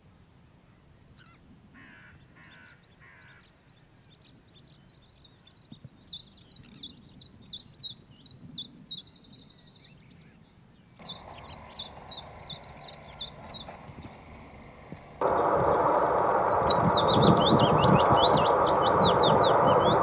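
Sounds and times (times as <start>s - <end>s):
bird singing repeated notes: 11.0s - 20.0s.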